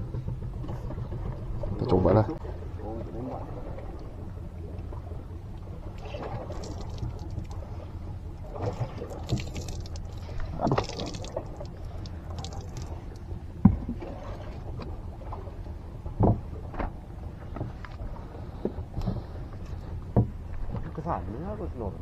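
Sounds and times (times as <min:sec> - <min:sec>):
low rumble: 0:00.0 - 0:22.0
water lapping against boat: 0:00.0 - 0:22.0
knocks on boat: 0:13.6 - 0:14.0, 0:16.2 - 0:17.8, 0:20.1 - 0:20.9.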